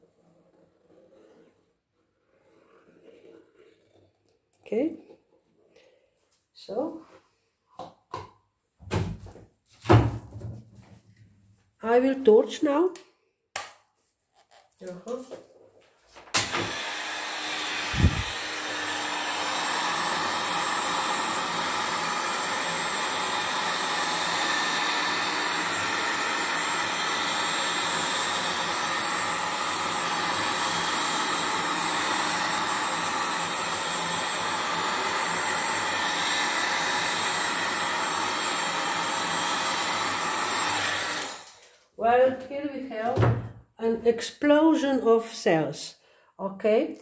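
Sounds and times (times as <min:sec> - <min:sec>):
heat gun blowing: 0:16.4 - 0:41.8.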